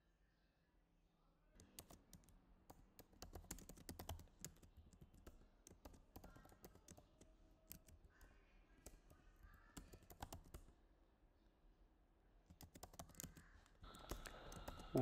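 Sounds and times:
typing on computer keyboard: 1.6 - 10.7, 12.5 - 15.0.

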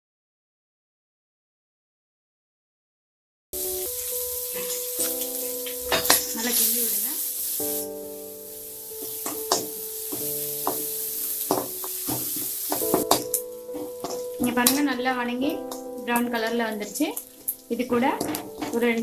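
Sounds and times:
onions sizzling in hot oil: 3.6 - 19.0
metal ladle scraping pan: 9.0 - 14.7.

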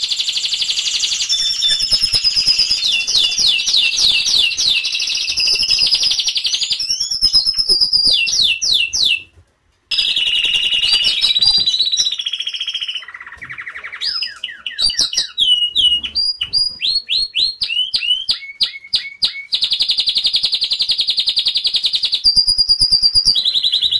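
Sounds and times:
canary singing trills: 0.0 - 9.3, 9.9 - 23.9.

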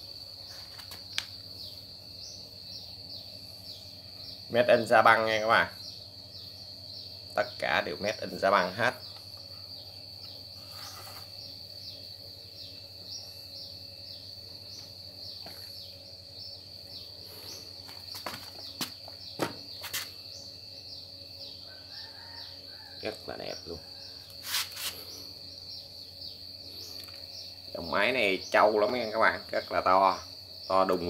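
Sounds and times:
high insect trill: 0.0 - 31.0
sharp knocks: 18.2 - 19.7.

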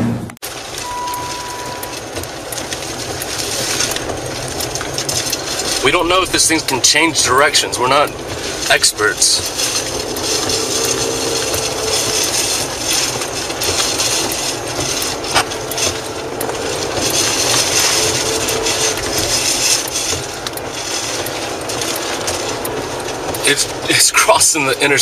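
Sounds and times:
wind and tyres on wet road: 0.4 - 25.0
ticks and knocks against car: 0.6 - 25.0.

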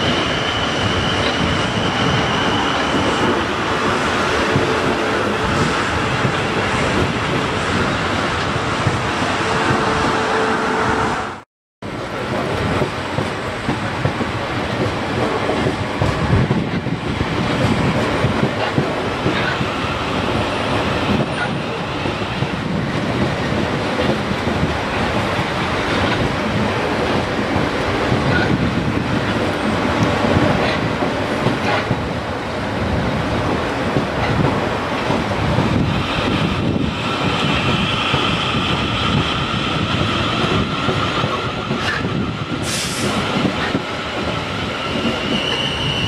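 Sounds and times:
high wheel squeals: 0.0 - 3.3, 44.8 - 46.0
train wheels rumbling on rail: 0.0 - 46.0.

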